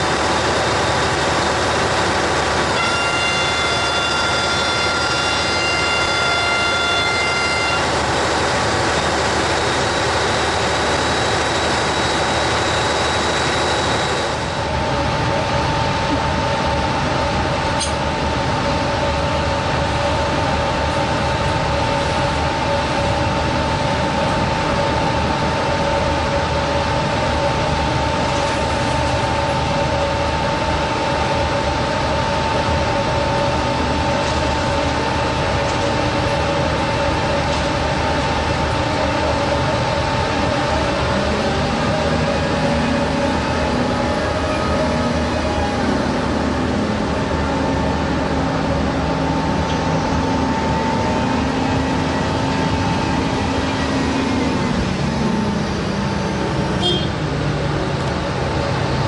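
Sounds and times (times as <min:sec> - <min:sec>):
engine room machinery noise: 0:00.0 - 0:59.0
hoist two-note whine: 0:02.7 - 0:08.0.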